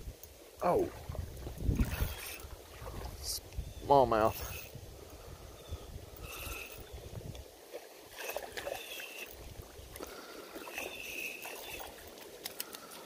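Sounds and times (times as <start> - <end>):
creek water splashing: 0.4 - 13.0
small clicks: 10.6 - 13.0.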